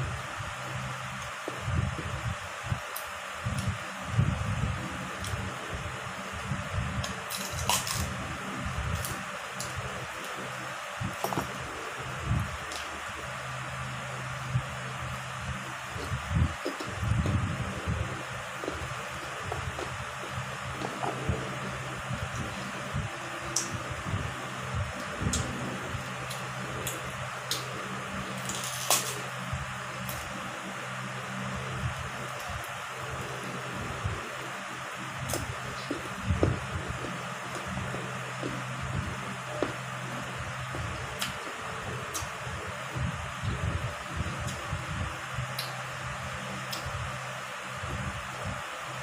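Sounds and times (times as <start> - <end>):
electric fan whirring: 0.0 - 49.0
crunchy chewing of mango: 7.0 - 13.0.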